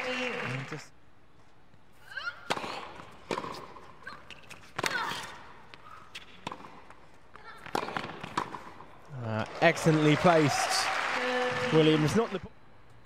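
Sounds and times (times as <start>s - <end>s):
shoes squeaking on court: 2.0s - 8.8s
tennis ball hit by racket: 2.4s - 3.9s, 4.5s - 6.9s, 7.6s - 8.8s.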